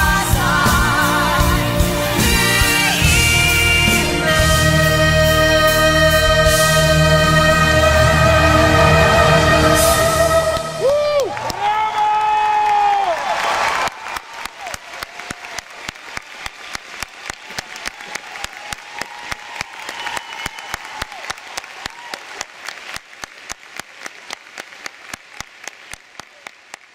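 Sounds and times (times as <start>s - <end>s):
audience applauding in rhythm: 10.3s - 26.9s
audience whoops: 10.6s - 15.8s, 17.3s - 22.6s.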